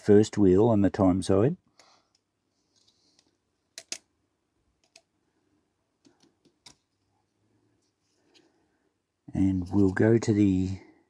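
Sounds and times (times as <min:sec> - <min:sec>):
small metal parts clicking: 0:03.8 - 0:04.0.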